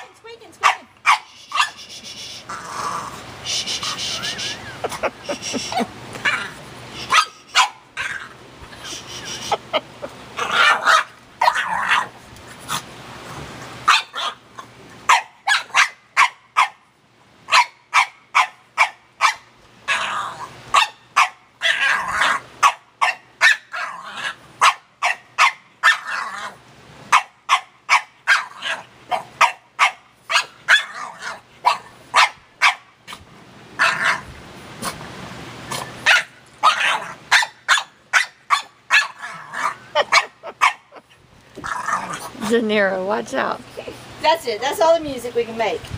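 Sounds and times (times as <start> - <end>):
dog barking: 0.6 - 1.8, 7.1 - 7.8, 13.9 - 14.4, 15.1 - 16.8, 17.5 - 19.4, 20.7 - 21.9, 22.6 - 23.7, 24.6 - 26.1, 27.1 - 31.0, 31.6 - 32.8, 36.0 - 40.9
dog drawn-out vocalising: 0.6 - 9.8, 35.7 - 42.6.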